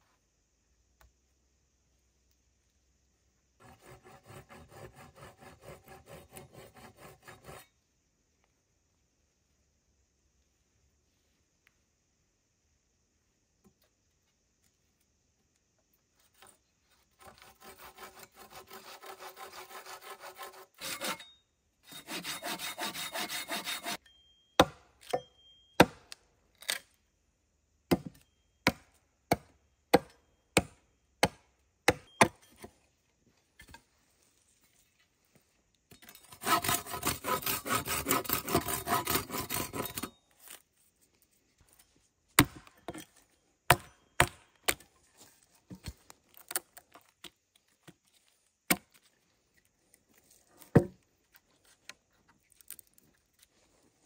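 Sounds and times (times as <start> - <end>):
hand saw cutting wood: 3.6 - 7.7, 17.2 - 24.0, 36.2 - 40.1.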